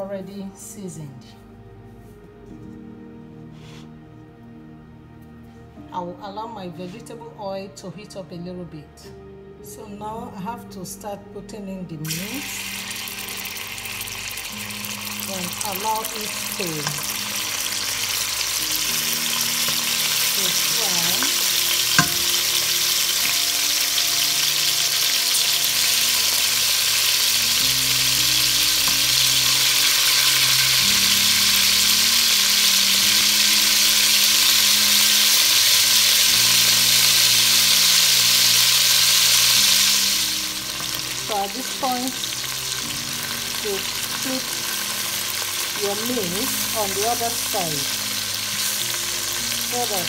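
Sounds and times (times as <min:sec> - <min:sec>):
meat sizzling in oil: 0:12.0 - 0:50.0.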